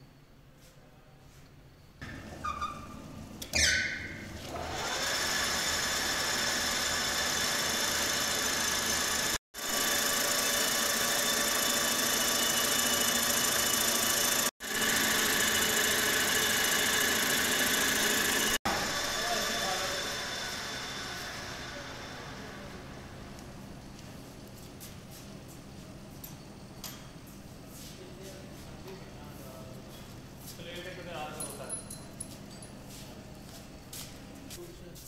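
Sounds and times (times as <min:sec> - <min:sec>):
metal lathe running: 0:04.5 - 0:23.2.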